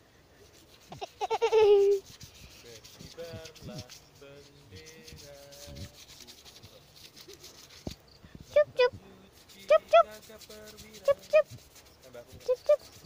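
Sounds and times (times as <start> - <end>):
finger rubbing phone microphone: 0.5 - 13.0
faint pitched calls: 11.0 - 13.0.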